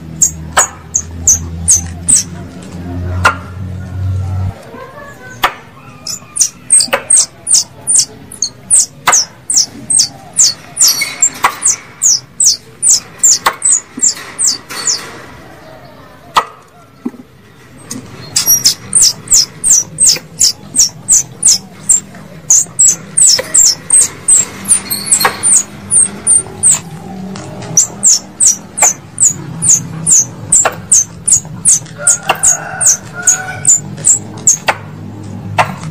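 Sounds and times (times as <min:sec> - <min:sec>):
squirrel chattering chirps: 0:00.1 - 0:02.4, 0:05.8 - 0:15.0, 0:18.3 - 0:26.9, 0:27.7 - 0:34.7.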